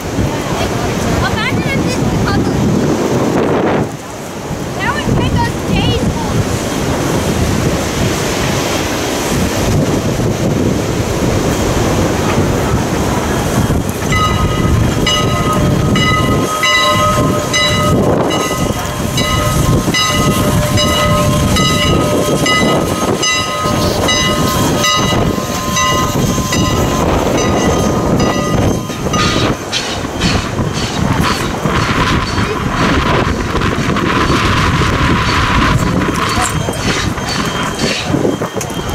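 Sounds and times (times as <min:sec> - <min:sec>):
steam locomotive exhaust chuffing: 0:06.5 - 0:38.9
locomotive bell ringing: 0:11.1 - 0:38.9.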